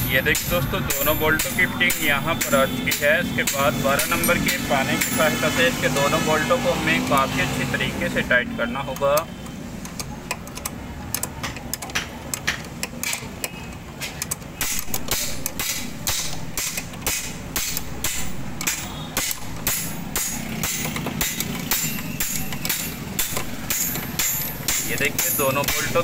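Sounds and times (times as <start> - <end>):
spanner clicking on metal bolt: 9.2 - 26.0.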